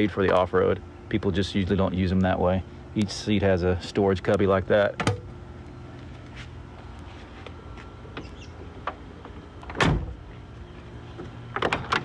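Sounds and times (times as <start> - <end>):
steady low hum: 0.0 - 12.0
car door thump: 9.6 - 10.2.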